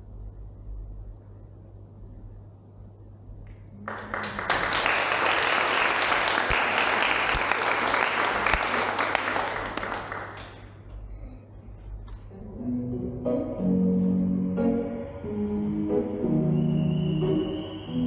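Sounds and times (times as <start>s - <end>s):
audience applauding: 3.8s - 10.8s.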